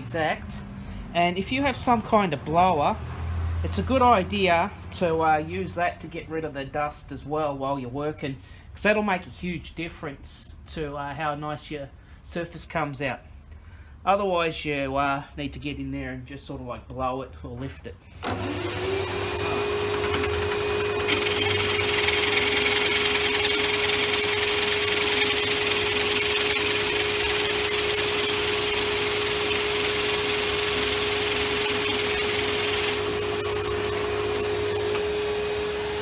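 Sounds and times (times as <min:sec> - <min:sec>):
cutter shaving into wood: 0:18.2 - 0:36.0
dust blower: 0:18.2 - 0:36.0
machine whine: 0:18.3 - 0:36.0.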